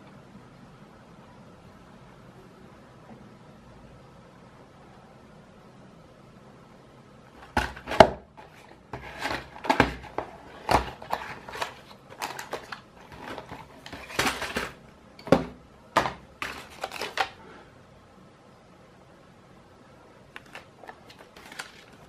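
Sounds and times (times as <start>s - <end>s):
cardboard and plastic crackles: 7.4s - 17.4s, 20.3s - 22.0s.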